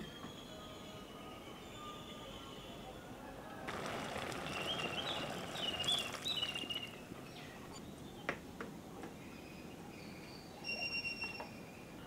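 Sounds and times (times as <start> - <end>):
birds chirping: 3.7 - 8.3
faint thin whistled notes: 4.5 - 7.0, 9.4 - 11.6.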